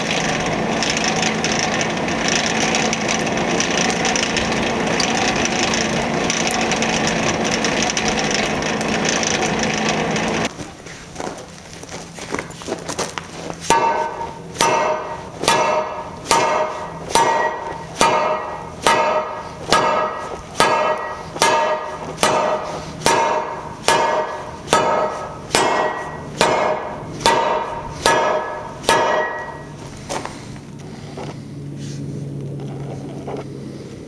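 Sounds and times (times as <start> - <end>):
ringing metal-on-metal strikes: 13.7 - 29.8.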